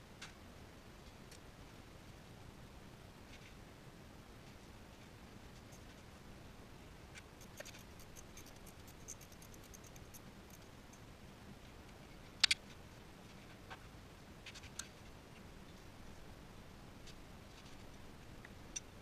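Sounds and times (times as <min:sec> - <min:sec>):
hands clicking and scraping parts: 0:07.2 - 0:10.7.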